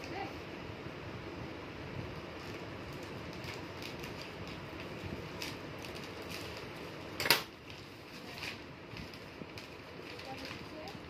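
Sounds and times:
plastic bags rustling: 0:02.1 - 0:11.0
sharp loud plastic crackle: 0:02.3 - 0:11.0.

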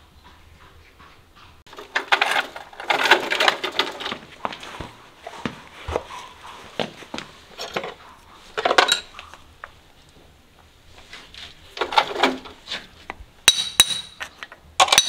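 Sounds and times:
horseshoe knocks and clicks: 0:01.7 - 0:04.6, 0:11.8 - 0:15.0.

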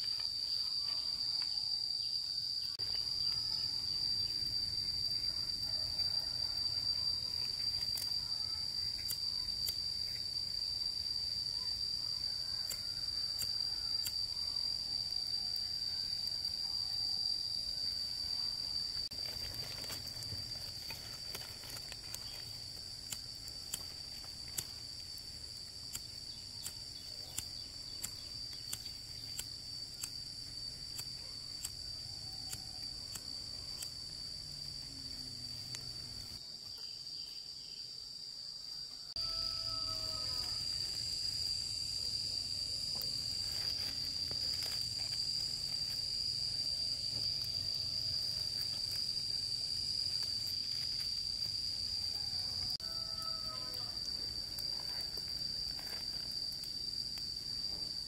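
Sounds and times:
insects droning: 0:00.0 - 0:58.0.

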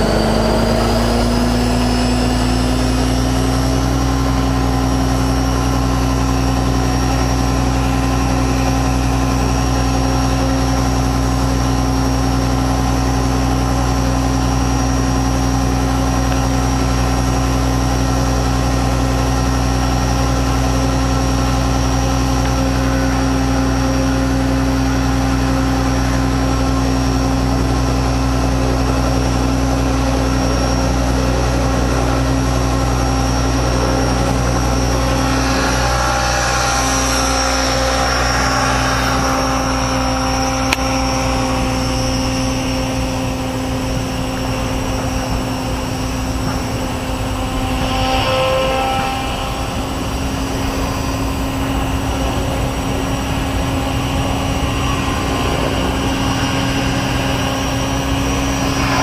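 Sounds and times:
helicopter rotor humming: 0:00.0 - 0:59.0
low rumble: 0:39.3 - 0:59.0.

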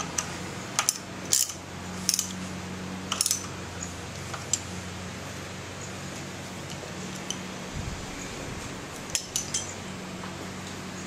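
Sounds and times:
small metal parts clinking: 0:00.0 - 0:02.4, 0:03.1 - 0:03.6, 0:09.0 - 0:09.8
steady low hum: 0:00.0 - 0:11.0.

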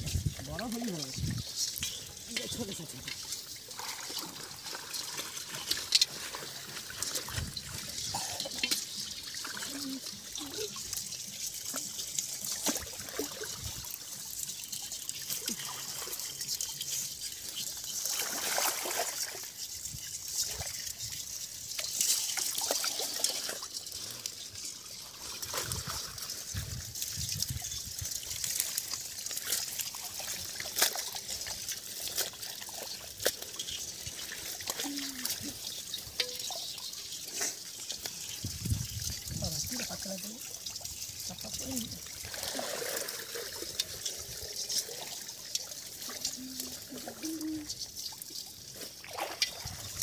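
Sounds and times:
water splashing and trickling: 0:00.0 - 0:50.0
small clicks and crackles: 0:04.9 - 0:18.2, 0:19.4 - 0:38.4.

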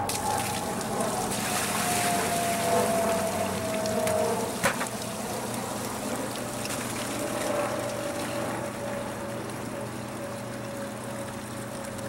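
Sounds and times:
water pouring into plastic bucket: 0:00.0 - 0:08.4.

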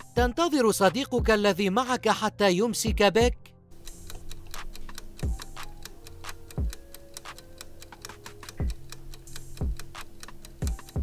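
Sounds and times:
quiet background music: 0:00.0 - 0:11.0
clock ticking: 0:03.7 - 0:11.0.

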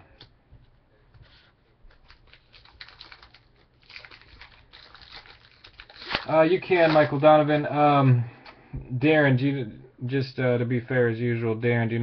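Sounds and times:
rustling of card wrappers: 0:01.3 - 0:07.7.

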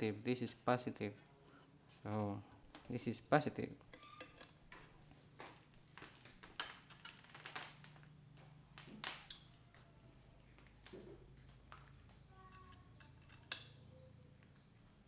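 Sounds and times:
leads dropped on wooden table: 0:06.0 - 0:08.1.

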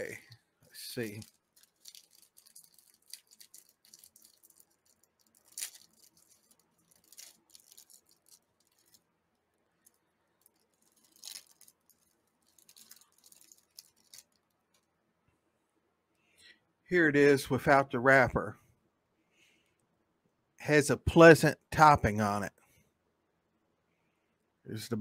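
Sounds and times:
plastic wrapper crinkling: 0:01.0 - 0:09.1, 0:09.8 - 0:14.9.

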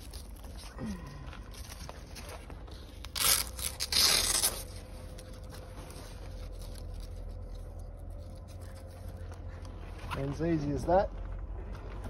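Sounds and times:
velcro straps ripping open: 0:00.0 - 0:09.3.

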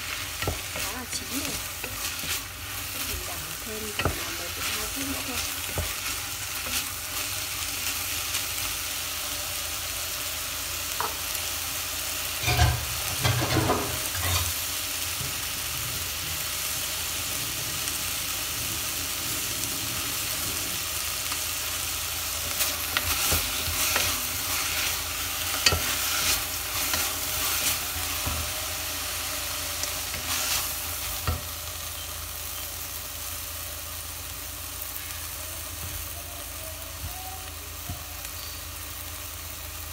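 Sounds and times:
food sizzling in a pot: 0:00.0 - 0:39.9
wooden spatula scraping a pot: 0:22.6 - 0:28.6.

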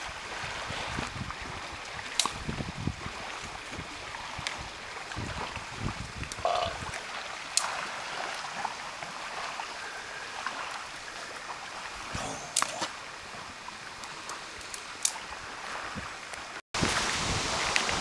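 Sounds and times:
outdoor background hiss: 0:06.0 - 0:18.0.

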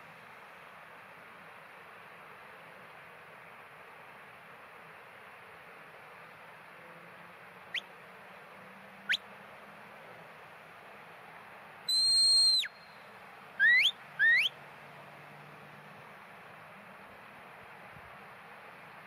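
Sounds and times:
herding whistle commands: 0:11.9 - 0:13.0, 0:13.6 - 0:14.6.

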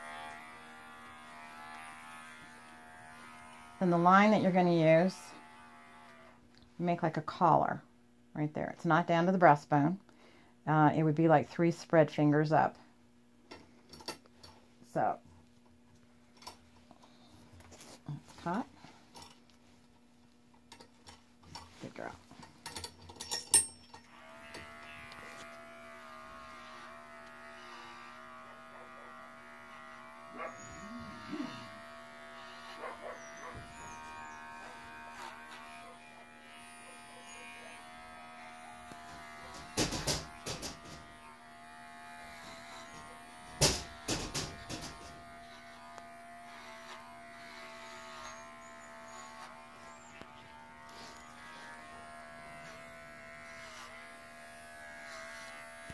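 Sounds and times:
hair clipper humming: 0:00.0 - 0:06.4, 0:24.1 - 0:55.9.

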